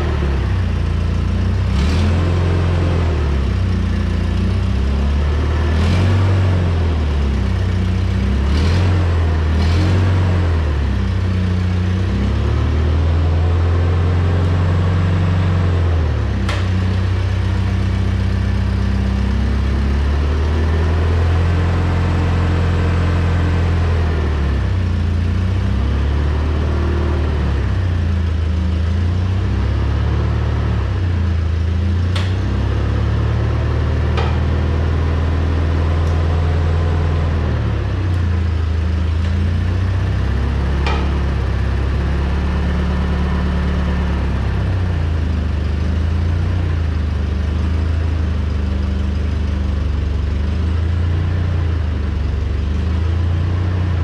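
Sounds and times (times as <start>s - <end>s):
forklift engine running: 0.0s - 54.0s
sharp clicks and clunks: 16.4s - 17.0s, 32.0s - 32.6s, 34.1s - 34.8s, 40.7s - 41.6s.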